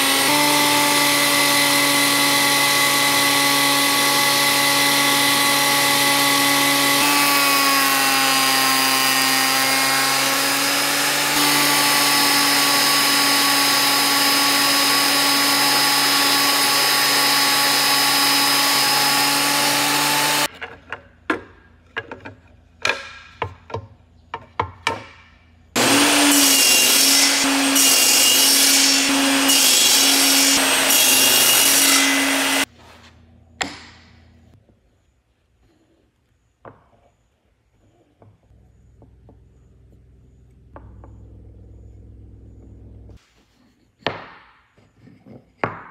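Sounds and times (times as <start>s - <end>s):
surface planer planing wood: 0.0s - 20.5s, 25.8s - 33.1s
table saw cutting: 0.0s - 20.5s, 25.8s - 32.7s.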